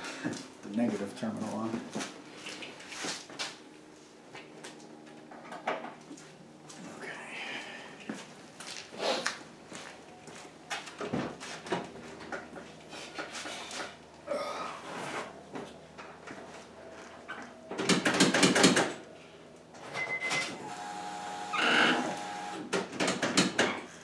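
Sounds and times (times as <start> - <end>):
scraping rustles: 14.8 - 17.3.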